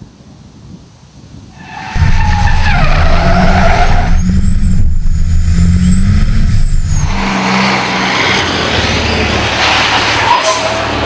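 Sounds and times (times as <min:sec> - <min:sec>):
tyres squealing: 0:01.6 - 0:11.0
truck engine running hard: 0:01.9 - 0:11.0.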